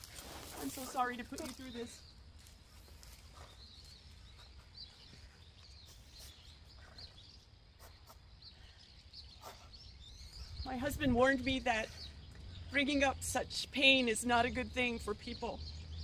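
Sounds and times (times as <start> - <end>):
faint bird chirps: 0.7 - 13.1.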